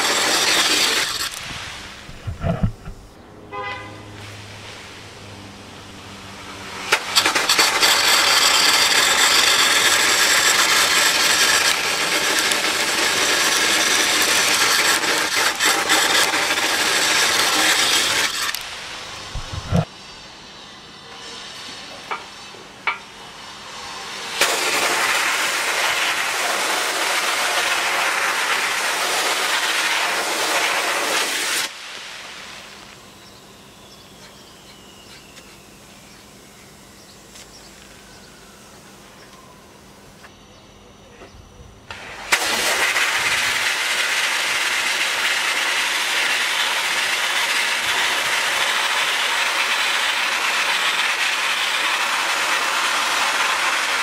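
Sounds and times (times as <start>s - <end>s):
sandblasting gun hissing: 0.0s - 3.0s, 6.2s - 33.3s, 41.9s - 54.0s.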